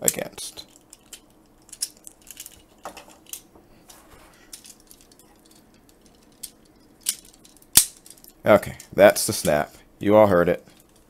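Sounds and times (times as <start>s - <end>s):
plastic toy parts clicking: 0.7s - 3.4s, 4.5s - 8.3s.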